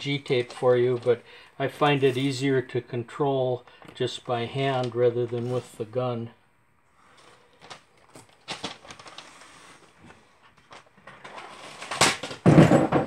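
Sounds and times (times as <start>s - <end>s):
tape rustles and clicks: 0.0s - 1.2s, 7.1s - 12.7s
frame clattering on table: 12.2s - 13.0s.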